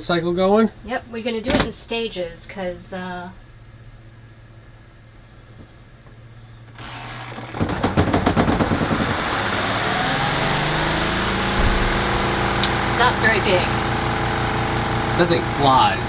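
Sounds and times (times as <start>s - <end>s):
washing machine motor whir: 6.6s - 16.0s.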